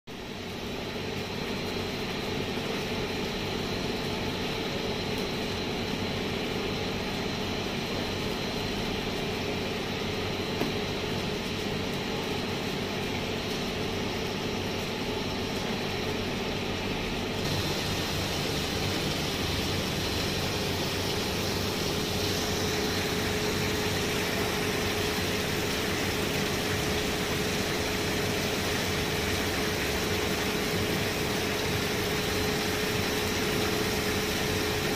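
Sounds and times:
screw press machine humming: 0:14.9 - 0:34.9.

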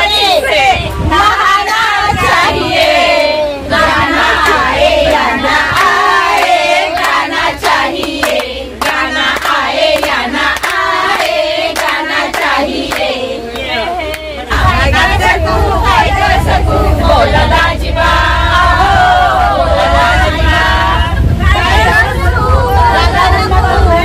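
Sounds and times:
women singing together: 0:00.0 - 0:24.0
hands clapping: 0:06.4 - 0:14.3.

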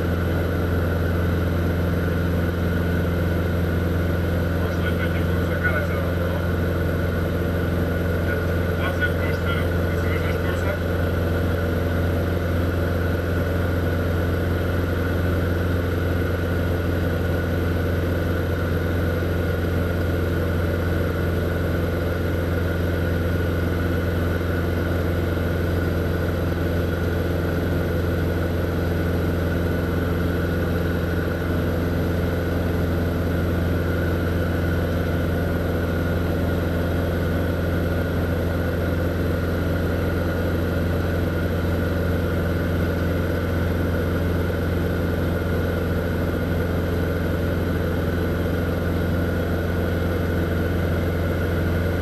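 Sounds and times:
light aircraft engine droning: 0:04.4 - 0:15.2.

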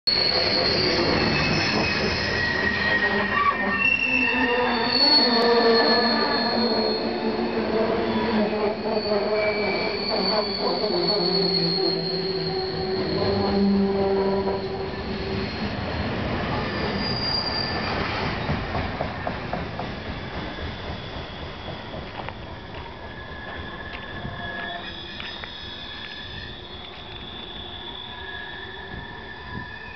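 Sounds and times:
train wheels squealing: 0:00.1 - 0:29.9
wheels rumbling and clattering on rail: 0:11.5 - 0:29.9.

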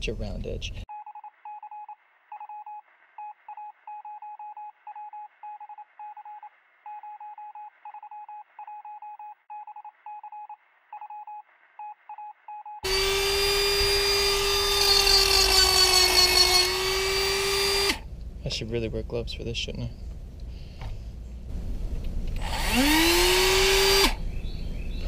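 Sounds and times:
rotary tool sanding wood: 0:12.8 - 0:18.0.

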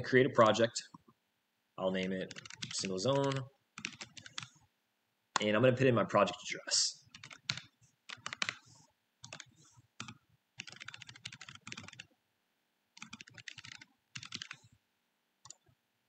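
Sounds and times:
typing on a computer keyboard: 0:02.3 - 0:04.6, 0:07.1 - 0:08.6, 0:09.2 - 0:12.1, 0:13.0 - 0:14.7, 0:15.4 - 0:15.7.

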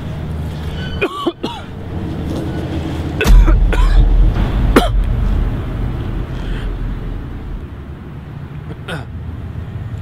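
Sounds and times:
man coughing hard: 0:01.0 - 0:01.7, 0:03.2 - 0:04.1, 0:04.7 - 0:05.1
low rumble: 0:01.7 - 0:08.5.

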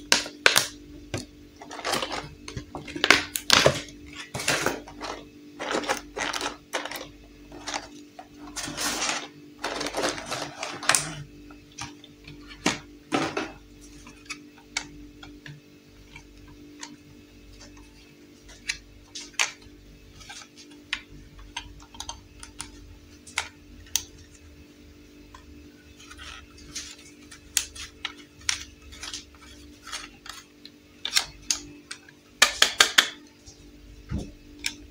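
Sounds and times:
plastic packaging crinkling: 0:01.6 - 0:12.7, 0:25.9 - 0:31.6.

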